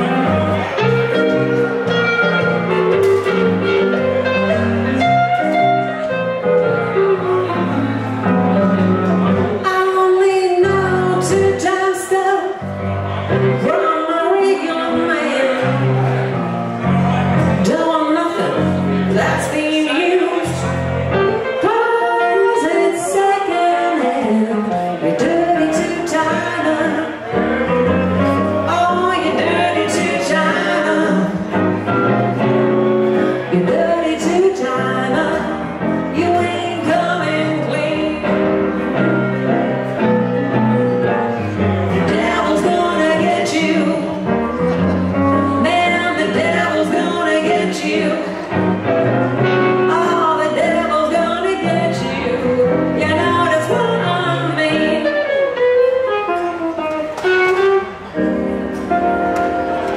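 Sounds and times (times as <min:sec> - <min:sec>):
bass line: 0:00.0 - 0:11.8
blues band playing: 0:00.0 - 0:59.9
electric guitar: 0:00.0 - 0:59.9
person singing: 0:09.0 - 0:31.9.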